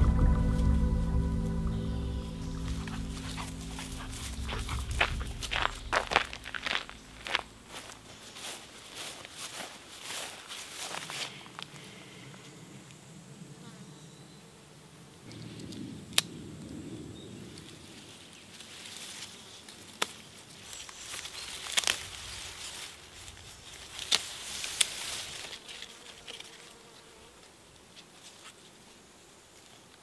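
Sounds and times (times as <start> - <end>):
rustling leaves and grass: 0.0 - 12.9, 15.2 - 30.0
plant stems snapping: 21.1 - 22.2
insect buzzing: 23.5 - 27.7.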